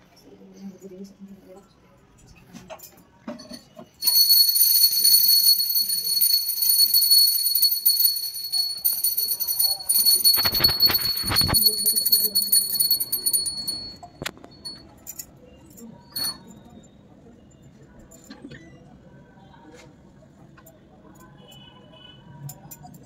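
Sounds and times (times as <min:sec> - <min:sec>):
hand bell ringing: 0:03.4 - 0:15.3, 0:16.1 - 0:16.5.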